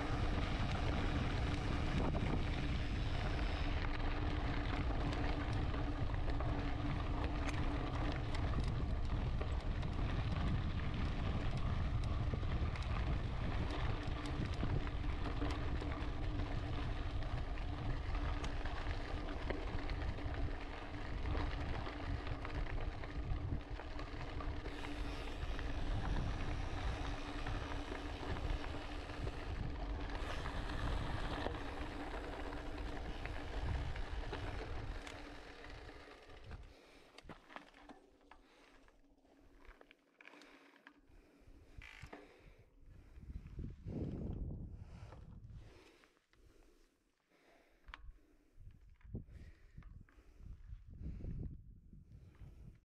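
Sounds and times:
wind buffeting microphone: 0.0 - 36.7, 42.9 - 45.8, 48.6 - 52.8
low hum: 0.0 - 39.8
bike tyres crunching on gravel: 0.0 - 40.8.

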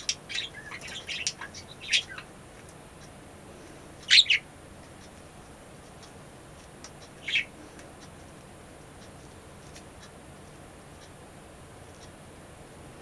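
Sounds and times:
budgerigar chirping: 0.0 - 2.3, 4.0 - 4.5, 7.0 - 7.6.

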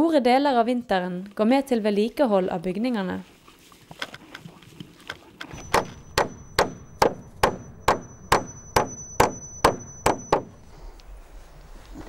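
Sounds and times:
hammer nailing into wood: 5.5 - 10.6.

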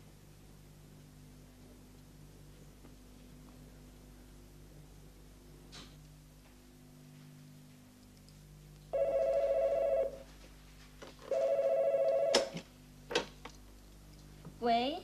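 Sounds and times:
desk telephone ringing: 9.0 - 10.2, 11.3 - 12.6.

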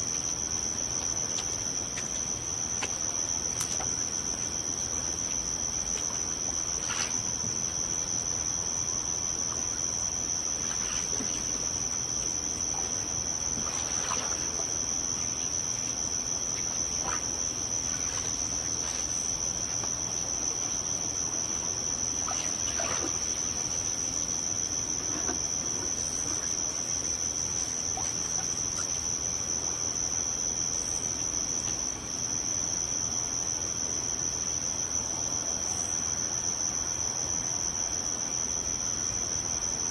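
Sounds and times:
faint soft water sounds: 0.0 - 29.8.

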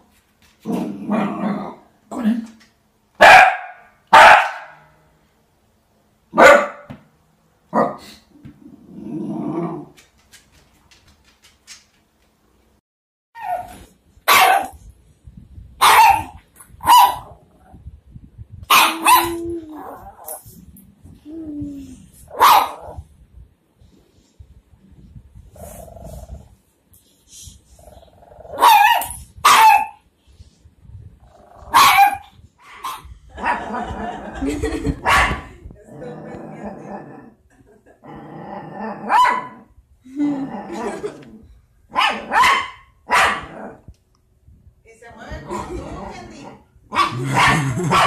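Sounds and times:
high dog barks: 3.2 - 4.8, 6.3 - 7.0, 7.7 - 8.1, 14.3 - 14.8, 15.8 - 17.4, 18.7 - 19.4, 22.3 - 23.0, 28.6 - 30.0, 31.7 - 33.8, 35.0 - 35.5, 39.1 - 39.6, 41.9 - 43.6, 46.9 - 48.0
small dog growling: 8.0 - 10.0, 25.5 - 26.6, 31.2 - 31.8, 35.9 - 37.4, 45.5 - 47.9.

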